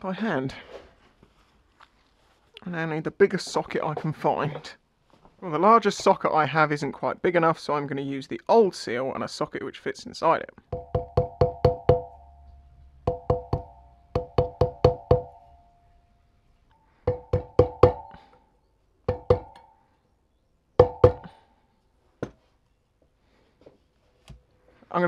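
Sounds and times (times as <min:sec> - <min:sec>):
hammer tapping on metal: 0:10.7 - 0:15.6, 0:17.0 - 0:18.2, 0:19.1 - 0:19.7, 0:20.8 - 0:21.3.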